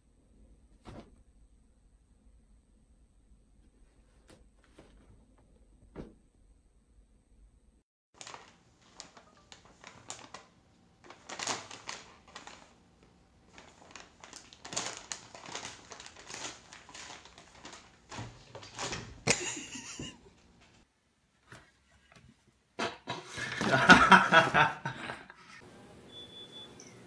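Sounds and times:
paper bag rustling and crinkling: 0:08.2 - 0:19.8.

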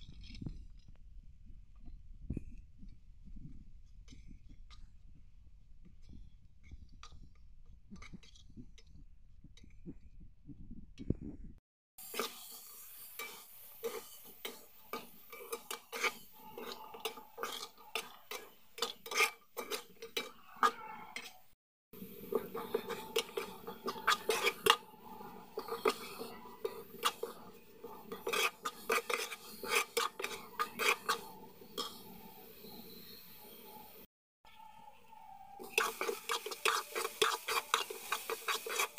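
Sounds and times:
metal spoon scraping metal pot: 0:13.1 - 0:33.8, 0:35.6 - 0:38.9.

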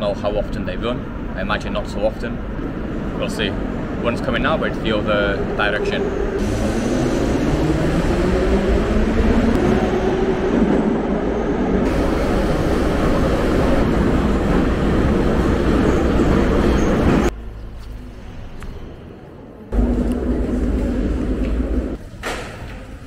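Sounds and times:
metro train rumble: 0:00.0 - 0:23.0
train motor whine: 0:05.9 - 0:10.8, 0:11.8 - 0:17.3.

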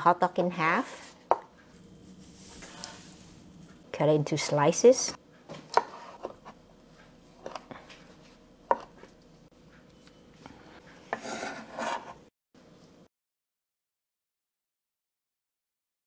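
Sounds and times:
knife scraping across board: 0:05.7 - 0:06.6, 0:10.6 - 0:12.3.

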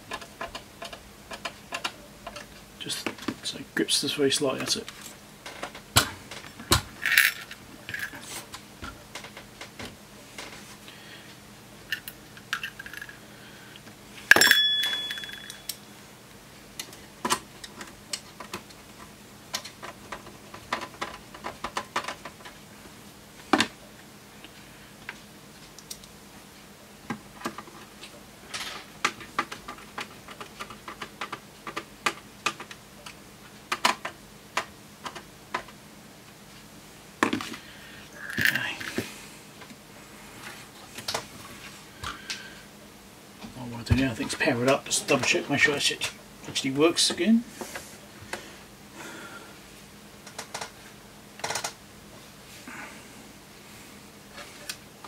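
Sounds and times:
sharp metallic clink: 0:14.3 - 0:15.8.

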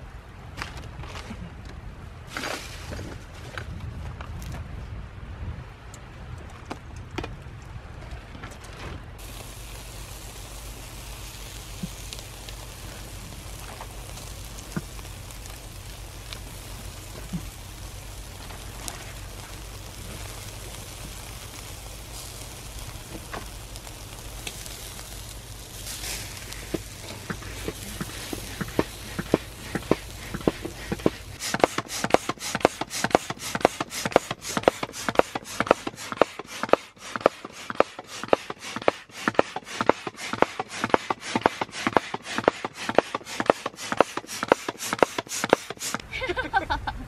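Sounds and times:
low steady hum: 0:00.0 - 0:38.1, 0:46.0 - 0:47.0
coals crackling and popping: 0:00.3 - 0:04.6, 0:09.2 - 0:46.1
chicken sizzling on grill: 0:09.2 - 0:46.7.

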